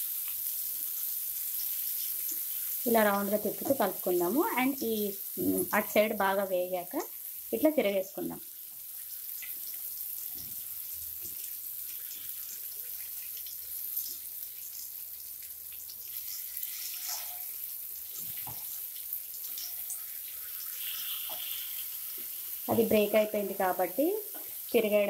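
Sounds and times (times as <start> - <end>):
eggs sizzling in hot oil: 0.0 - 25.0.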